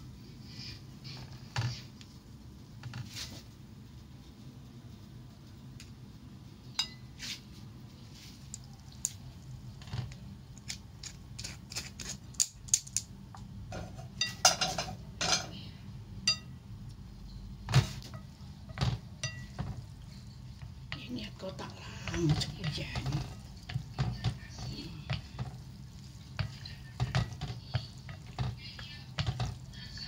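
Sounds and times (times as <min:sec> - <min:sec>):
utensils clinking against dishes: 0:13.7 - 0:15.6, 0:17.3 - 0:20.5.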